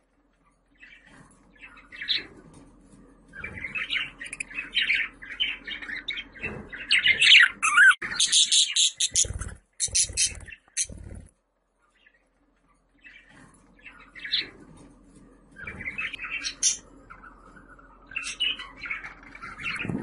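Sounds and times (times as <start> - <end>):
budgerigars chattering and warbling: 3.4 - 11.2, 15.6 - 20.0.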